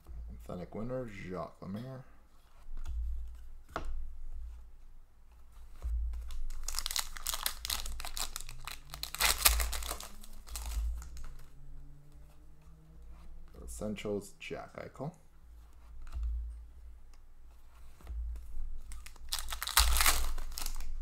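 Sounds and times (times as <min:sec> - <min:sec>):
foil wrapper tearing and crinkling: 0:06.3 - 0:11.4, 0:18.9 - 0:21.0.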